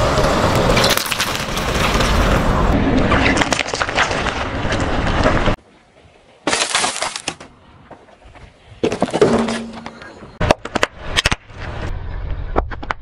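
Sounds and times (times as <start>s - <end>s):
brittle item cracking under tyre: 0.5s - 2.4s, 3.1s - 4.9s, 6.4s - 7.5s.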